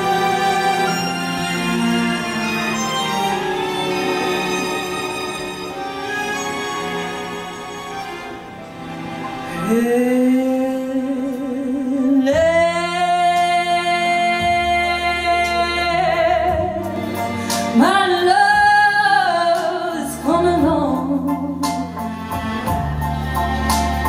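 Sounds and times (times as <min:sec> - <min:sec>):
woman singing with vibrato: 0:09.5 - 0:16.9.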